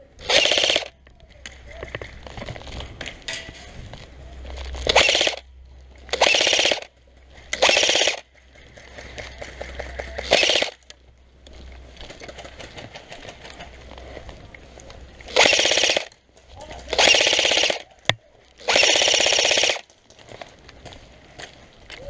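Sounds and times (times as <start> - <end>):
airsoft gun automatic bursts: 0.2 - 1.0, 4.8 - 5.4, 6.1 - 6.9, 7.5 - 10.8, 15.3 - 16.2, 16.9 - 17.9, 18.6 - 19.9.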